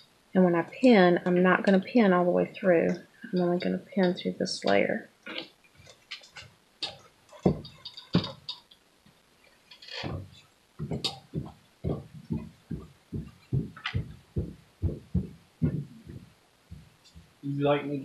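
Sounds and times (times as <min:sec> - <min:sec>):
soft regular thumps: 0:02.7 - 0:17.4
fabric rustling and knocks: 0:05.4 - 0:17.4.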